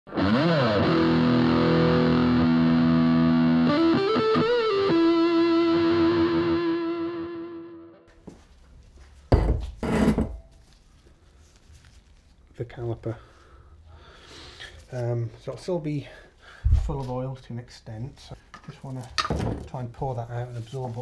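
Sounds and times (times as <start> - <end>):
distorted electric guitar: 0.1 - 8.1.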